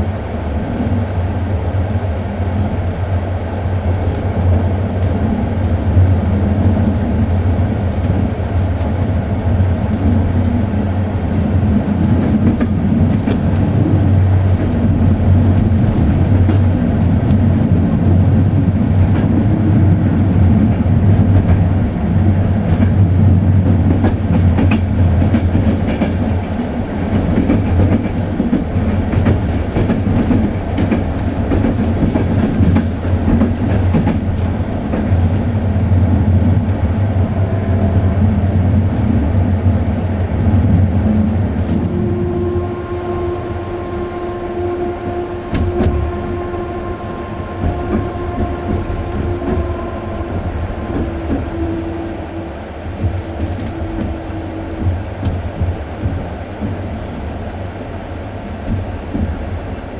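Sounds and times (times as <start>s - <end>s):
train wheels rumbling on rails: 0.0s - 59.9s
wheels clicking over rail joints: 3.9s - 36.9s.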